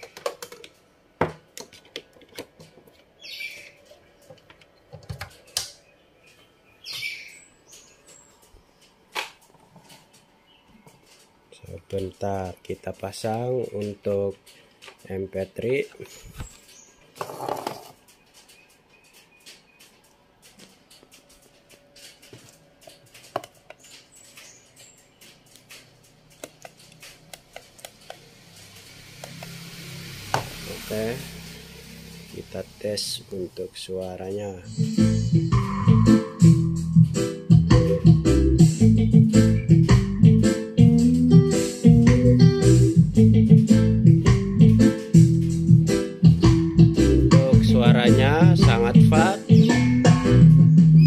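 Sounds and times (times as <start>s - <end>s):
cables and plugs clicking: 1.5s - 7.1s, 17.8s - 29.6s
clicks and taps of handling cables: 25.2s - 28.2s.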